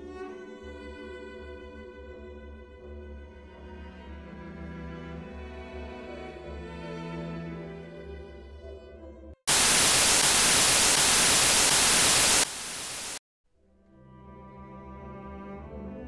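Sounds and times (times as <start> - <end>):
television static hiss: 9.5 - 13.2.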